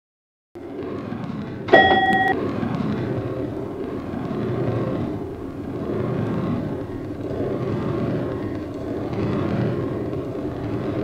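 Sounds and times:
bell-like ding: 1.7 - 2.4.

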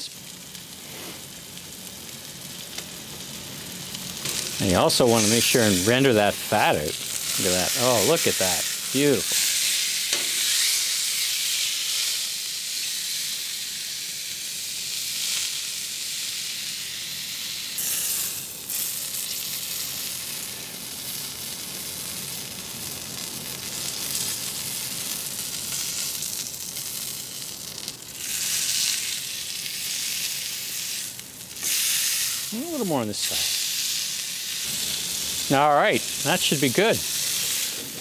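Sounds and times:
steak sizzling on griddle: 0.0 - 38.0.

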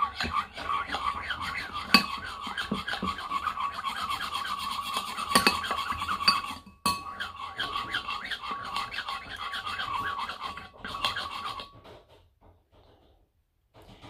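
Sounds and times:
spoon stirring slime in bowl: 0.0 - 11.9
spoon clinking on bowl: 1.9 - 2.2, 5.3 - 7.2.

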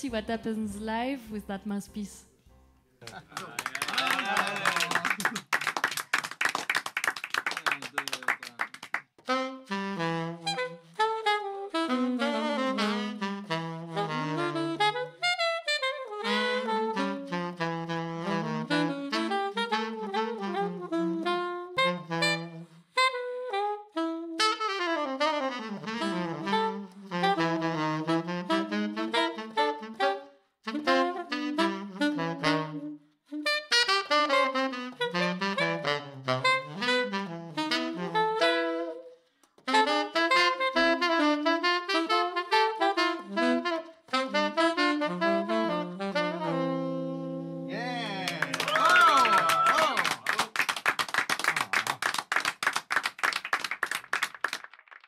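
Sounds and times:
hands clapping: 3.0 - 9.3, 39.4 - 39.7, 48.0 - 55.0
saxophone playing jazz: 9.2 - 49.4.

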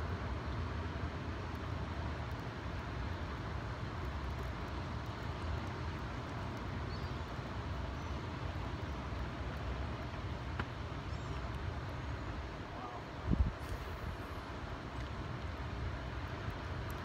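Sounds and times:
rushing water below a dam: 0.0 - 17.0
wind: 0.0 - 17.0
faint high bird chirps: 6.9 - 7.2.

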